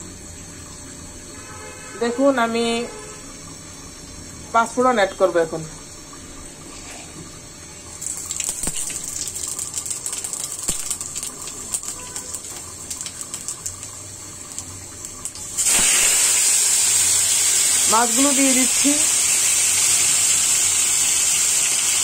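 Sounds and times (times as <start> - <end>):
loud steady sizzle: 0.0 - 22.0
oil sizzling: 0.0 - 22.0
spice seeds popping in oil: 8.0 - 20.2.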